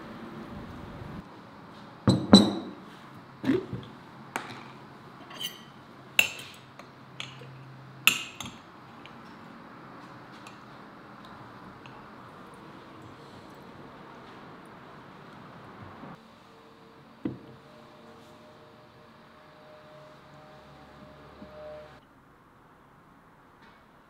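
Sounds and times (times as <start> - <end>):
metal spoon clinking against glass: 5.2 - 6.5.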